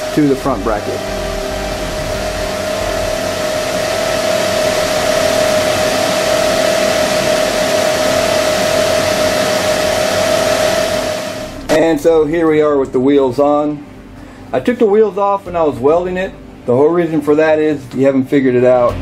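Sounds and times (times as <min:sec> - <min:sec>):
blower motor running: 0:00.0 - 0:12.7.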